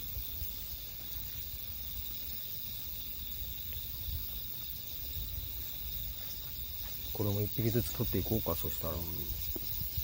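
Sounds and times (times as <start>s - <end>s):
crickets chirping: 0.0s - 10.0s
beetle creaking squeaks: 2.9s - 10.0s.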